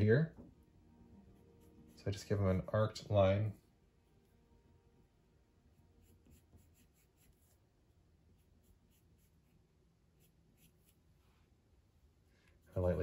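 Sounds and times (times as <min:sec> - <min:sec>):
pencil scratching on paper: 0:01.4 - 0:02.2, 0:05.8 - 0:07.7, 0:08.3 - 0:11.3.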